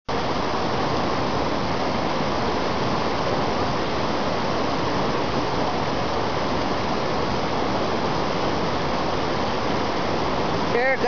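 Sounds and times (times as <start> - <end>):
river rapids rushing over rocks: 0.1 - 11.0.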